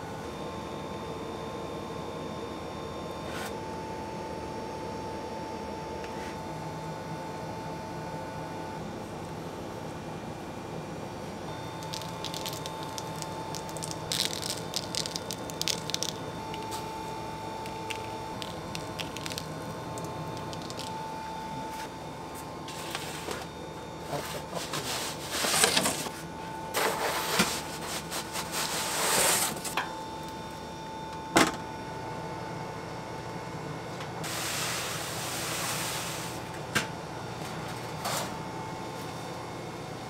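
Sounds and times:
steady thin whine: 0:00.0 - 0:32.8
wooden peel scraping and sliding: 0:26.8 - 0:29.7.

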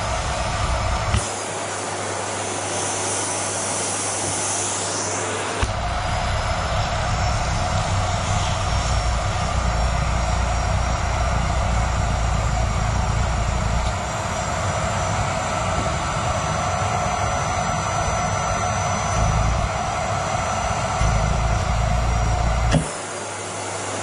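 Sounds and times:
vacuum cleaner motor whine: 0:00.0 - 0:24.0
low rumble: 0:05.6 - 0:14.5, 0:19.0 - 0:22.8.

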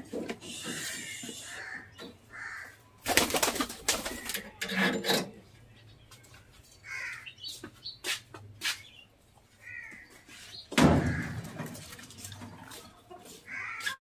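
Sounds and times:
budgerigars chirping and chattering: 0:00.4 - 0:02.8.

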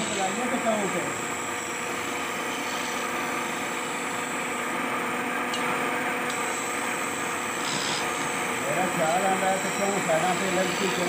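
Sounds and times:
chisel cutting spinning wood: 0:00.0 - 0:04.8, 0:06.3 - 0:11.0
lathe motor hum: 0:00.0 - 0:11.0.

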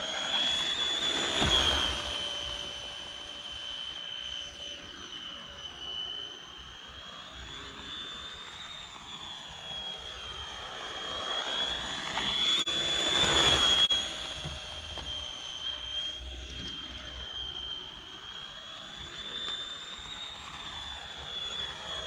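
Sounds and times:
rc car motor whine: 0:00.0 - 0:22.0.

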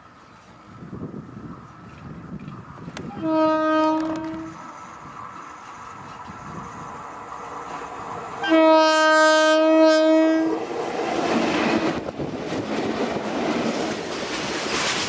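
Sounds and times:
locomotive air horn blast: 0:03.1 - 0:04.8, 0:08.4 - 0:10.6
train wagons clattering on rails: 0:10.7 - 0:15.0.

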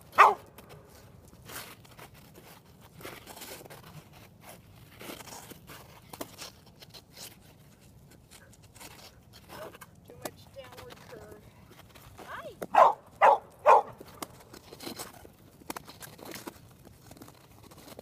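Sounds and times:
ice skate blades scraping ice: 0:00.0 - 0:18.0
dog barking: 0:00.2 - 0:00.4, 0:12.7 - 0:14.0.

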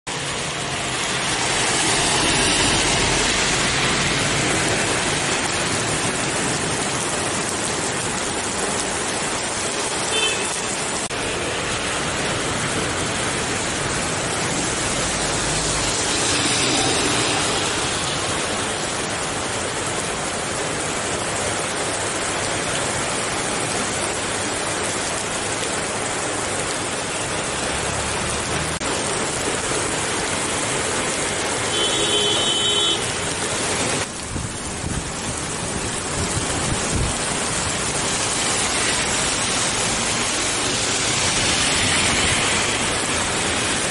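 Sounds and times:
heavy rain on road: 0:00.1 - 0:43.9
vehicles swishing through water: 0:00.2 - 0:07.5, 0:37.6 - 0:43.9.

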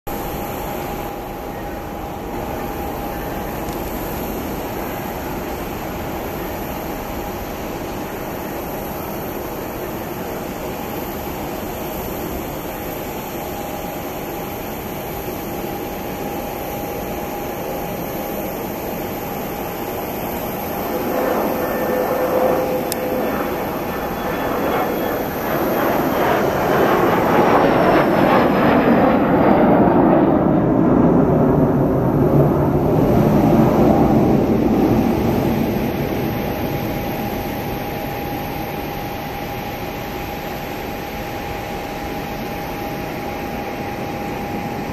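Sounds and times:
jet taking off: 0:14.8 - 0:44.9.

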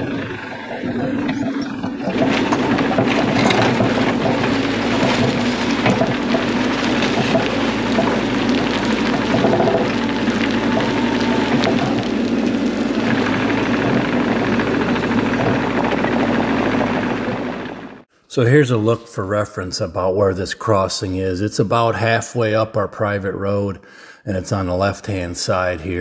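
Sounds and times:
knocks and clatter: 0:00.0 - 0:18.0
excavator diesel engine running: 0:00.0 - 0:18.1.

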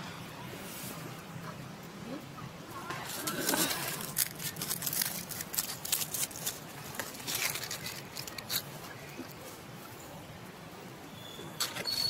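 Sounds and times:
dry rustling and crackling: 0:02.7 - 0:09.7.

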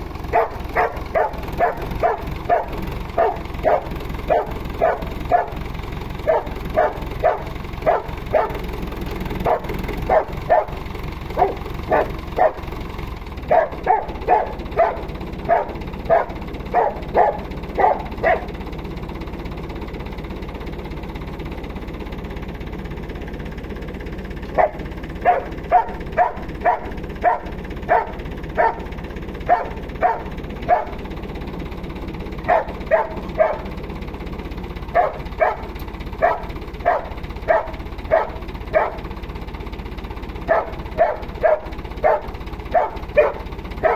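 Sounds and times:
dog barking: 0:00.2 - 0:18.6, 0:24.4 - 0:31.1, 0:32.4 - 0:33.8, 0:34.9 - 0:39.1, 0:40.4 - 0:43.9.

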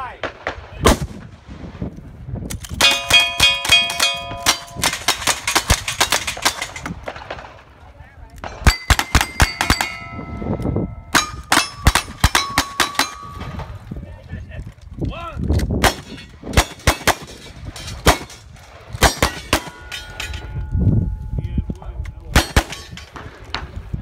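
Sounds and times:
steel target clanging: 0:02.8 - 0:06.9, 0:08.5 - 0:13.8, 0:19.1 - 0:21.4, 0:22.4 - 0:23.2.

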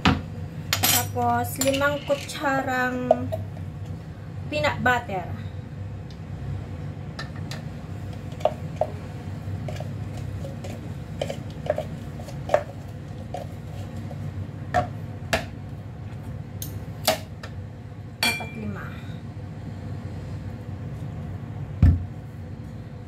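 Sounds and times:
steady low hum: 0:00.0 - 0:23.0
spoon scraping: 0:09.6 - 0:14.2.

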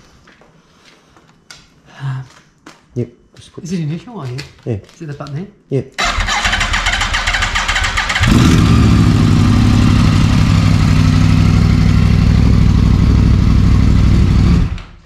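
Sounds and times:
electric starter cranking: 0:06.0 - 0:08.8
motorcycle engine idling: 0:06.3 - 0:14.8.

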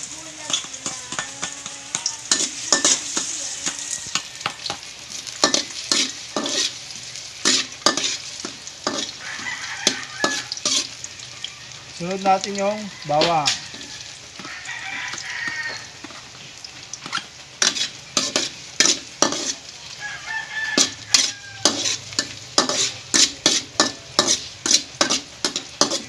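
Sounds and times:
garlic sizzling in hot oil: 0:00.0 - 0:26.0
utensil scraping metal wok: 0:00.0 - 0:26.0.

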